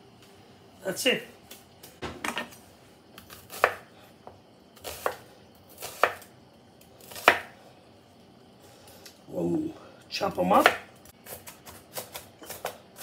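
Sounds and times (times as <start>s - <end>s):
knife slicing onion: 3.2s - 3.9s, 4.8s - 6.3s, 7.0s - 7.6s, 10.5s - 13.0s.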